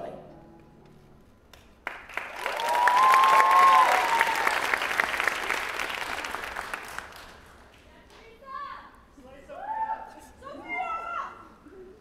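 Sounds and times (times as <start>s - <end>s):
audience applauding: 1.8s - 7.7s
crowd cheering: 2.1s - 7.2s.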